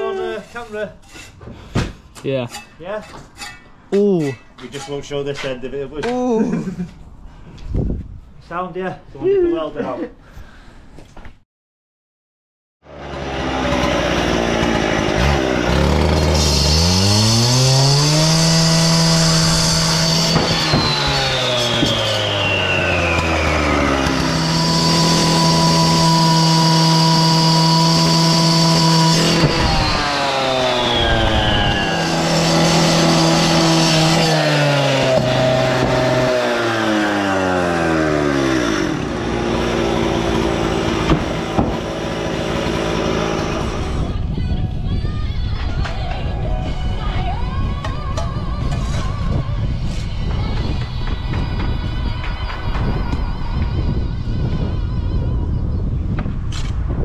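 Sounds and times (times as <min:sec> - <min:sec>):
engine running: 0:12.9 - 0:44.2.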